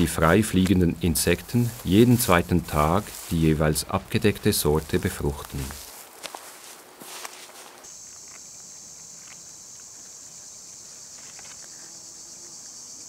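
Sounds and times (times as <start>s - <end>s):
insects chirring: 0.0s - 13.0s
rustle with light clicks: 10.7s - 11.8s.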